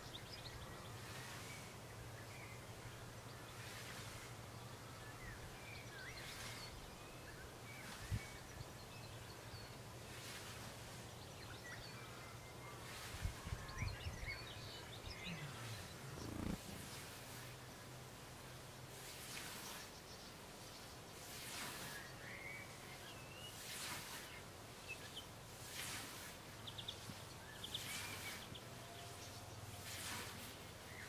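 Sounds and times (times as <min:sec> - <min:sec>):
small birds chirping: 0:00.0 - 0:17.8.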